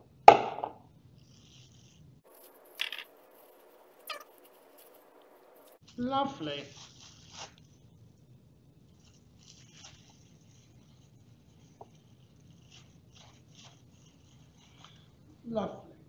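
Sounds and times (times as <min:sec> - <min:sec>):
soft rustles and squishes: 0:02.2 - 0:08.1, 0:08.8 - 0:15.4.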